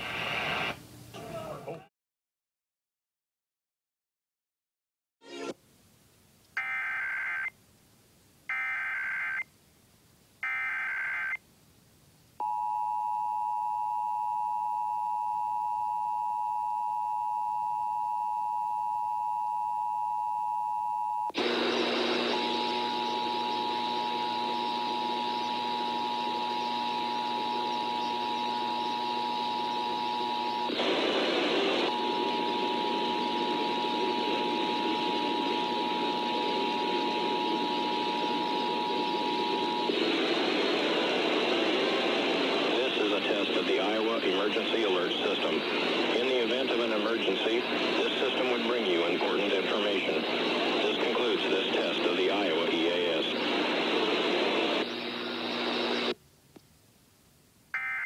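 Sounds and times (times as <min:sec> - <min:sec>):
loud hiss with tones: 0:00.0 - 0:01.4, 0:21.3 - 0:57.8.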